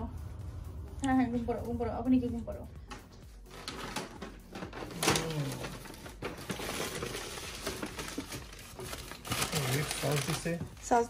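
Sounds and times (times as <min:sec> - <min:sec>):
paper bag rustling: 0:03.4 - 0:11.0.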